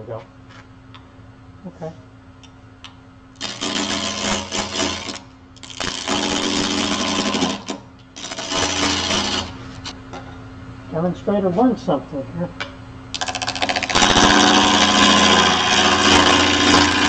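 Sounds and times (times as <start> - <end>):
tool shaving wood: 3.4 - 9.9, 13.2 - 17.0
lathe motor humming: 13.2 - 17.0.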